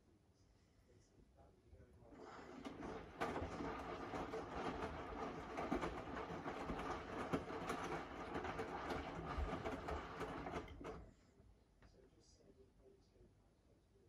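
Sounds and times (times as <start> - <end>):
washing machine drum tumbling: 2.2 - 11.1.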